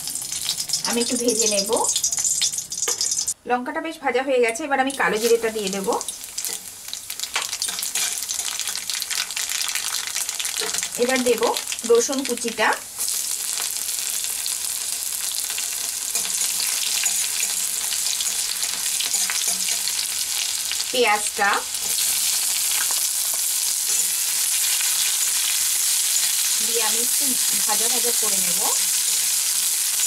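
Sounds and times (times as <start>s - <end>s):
garlic sizzling in hot oil: 0.0s - 3.4s, 4.6s - 30.0s
spatula stirring: 7.6s - 8.8s.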